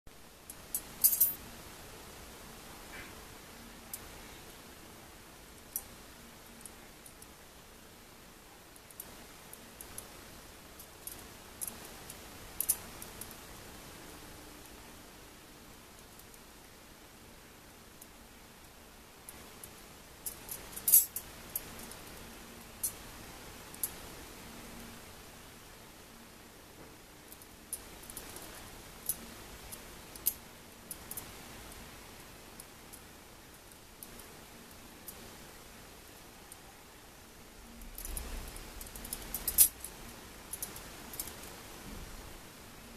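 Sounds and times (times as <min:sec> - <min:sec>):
faint steady hiss: 0:00.1 - 0:42.9
metal wire puzzle clinking: 0:00.5 - 0:01.4, 0:20.2 - 0:23.0, 0:27.3 - 0:31.8, 0:37.8 - 0:41.6
metal wire puzzle clicking: 0:20.2 - 0:22.2, 0:37.8 - 0:41.5.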